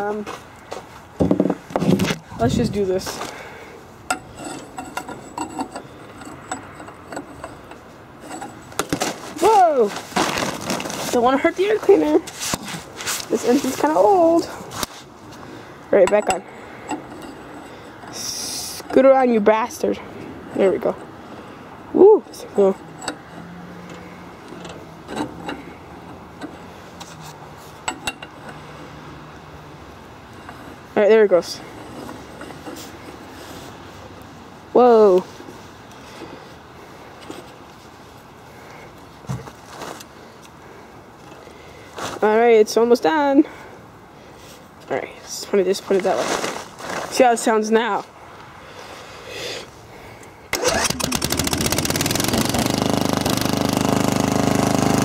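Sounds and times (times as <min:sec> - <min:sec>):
metal pipe clinking and scraping: 0:04.0 - 0:15.0, 0:16.0 - 0:21.2, 0:22.2 - 0:28.9, 0:30.3 - 0:33.8.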